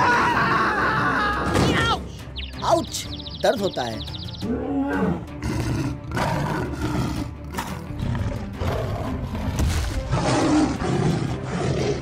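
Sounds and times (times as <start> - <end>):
background music: 0.0 - 12.0
dinosaur roars: 4.4 - 12.0.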